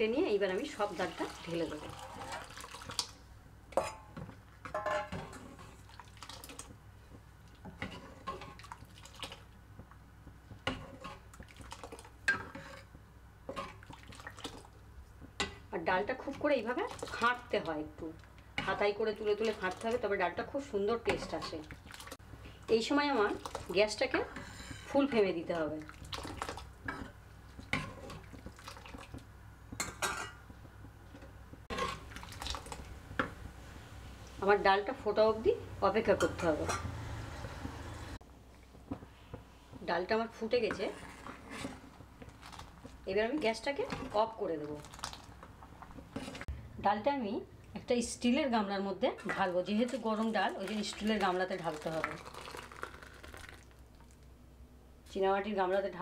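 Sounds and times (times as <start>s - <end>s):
thick liquid sloshing: 0.6s - 3.2s, 5.3s - 6.7s, 13.5s - 14.8s, 21.2s - 22.2s, 25.7s - 26.8s, 27.7s - 29.2s, 31.7s - 33.0s, 40.8s - 46.5s, 49.4s - 54.3s
metal ladle clinking on pan: 3.7s - 5.4s.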